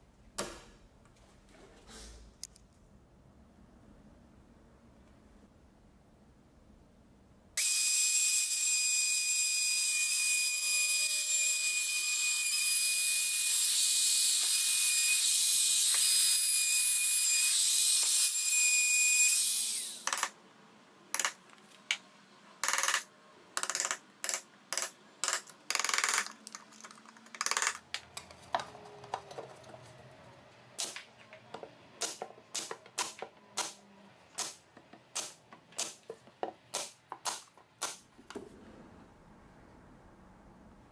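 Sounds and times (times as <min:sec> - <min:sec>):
brad nailer firing: 0:32.0 - 0:33.8, 0:34.4 - 0:36.0.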